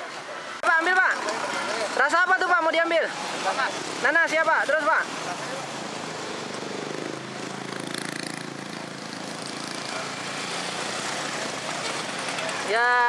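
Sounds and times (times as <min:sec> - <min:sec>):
traffic hiss: 0:00.0 - 0:13.0
small motorcycle engine running: 0:06.4 - 0:12.7.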